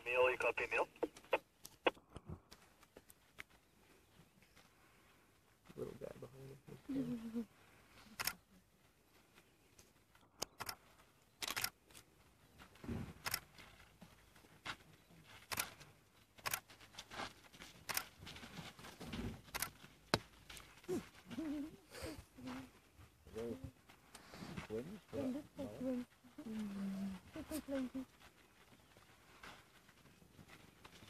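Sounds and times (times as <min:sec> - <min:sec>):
camera shutters clicking: 0:10.5 - 0:10.8, 0:11.4 - 0:11.8.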